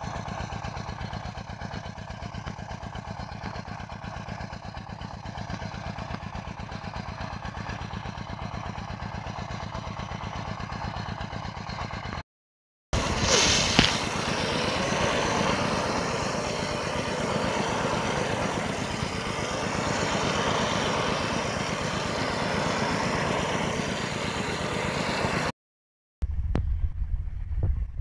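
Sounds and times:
sprinkler jetting water: 13.0 - 23.0
low rumble: 26.2 - 28.0.

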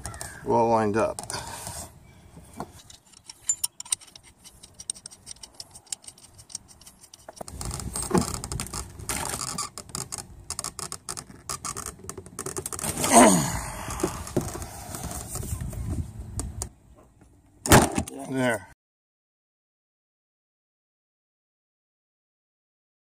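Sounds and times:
metal ring and tool scraping: 1.4 - 8.2.

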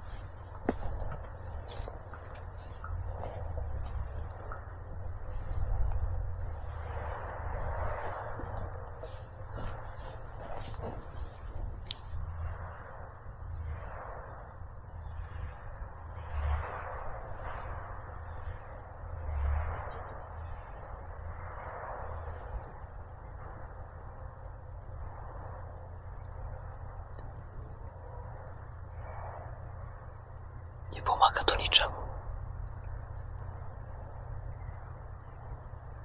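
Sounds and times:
small birds calling: 0.0 - 12.8
distant machinery rumble: 0.0 - 36.0.

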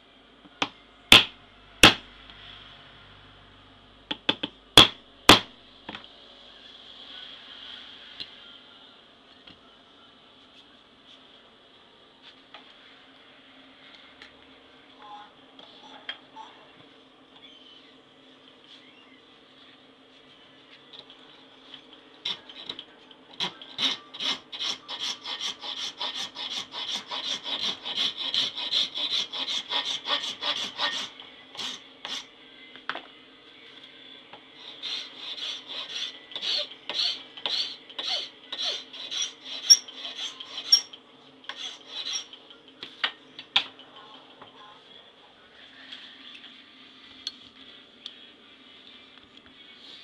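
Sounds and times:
faint steady hum: 0.0 - 50.0
hand file rasping on wood: 23.8 - 32.2, 34.6 - 40.9, 41.5 - 42.3.

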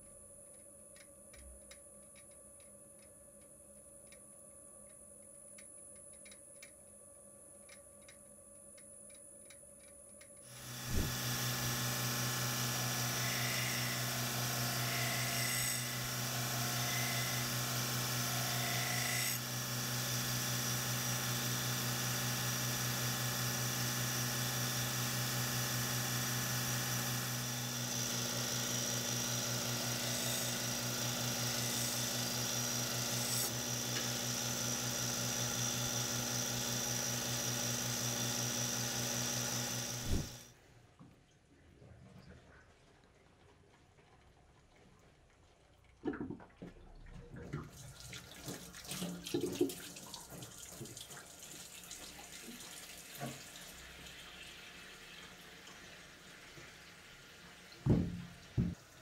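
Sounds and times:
grinder belt hissing: 10.5 - 40.4
belt grinder motor humming: 10.5 - 40.5.

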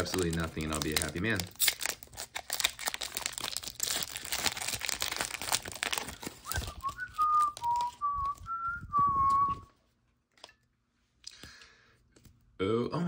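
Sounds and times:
foil wrapper crinkling and tearing: 0.0 - 8.7
person whistling a tune: 6.4 - 9.7.

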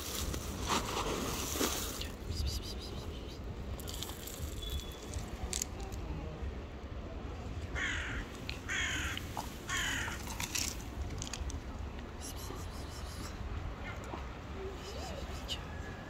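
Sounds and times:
crow cawing: 7.8 - 10.2.

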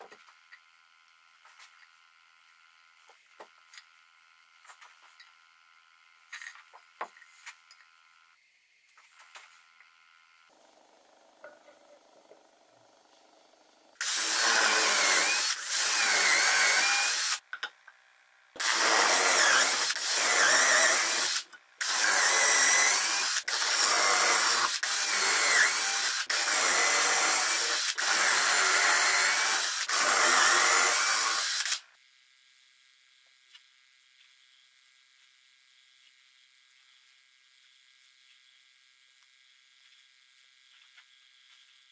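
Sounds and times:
cordless drill boring into wood: 14.0 - 17.4, 18.6 - 31.8.

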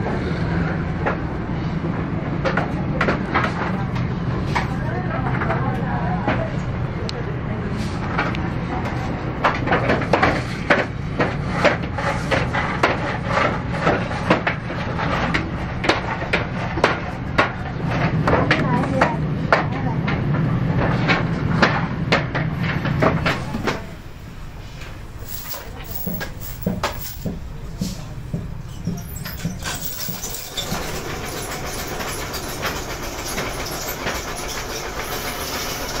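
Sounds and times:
workshop machinery humming: 0.0 - 36.0
low rumble: 22.5 - 29.0, 30.4 - 33.2
metallic clatter of steel chain: 25.1 - 27.3, 28.9 - 36.0.

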